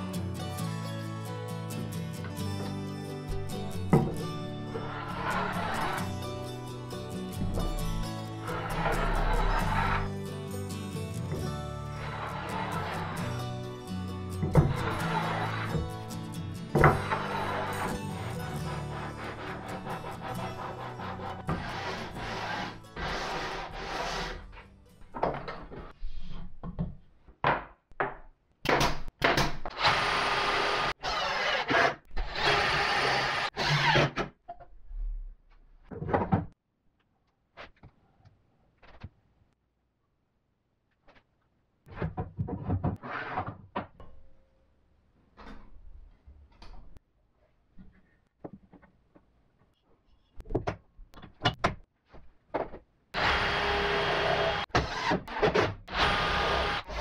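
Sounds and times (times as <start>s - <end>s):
cordless drill boring into wood: 29.8s - 34.1s, 53.2s - 55.3s, 55.9s - 57.0s.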